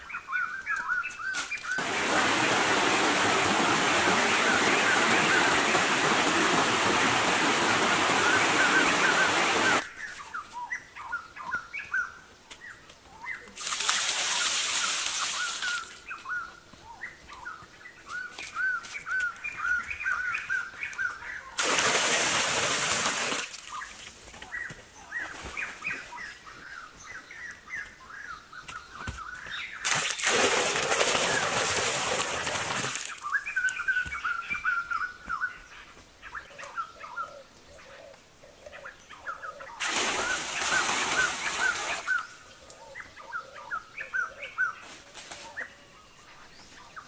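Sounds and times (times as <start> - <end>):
loud rush of noise: 1.8 - 9.8
small birds chirping: 33.0 - 47.0.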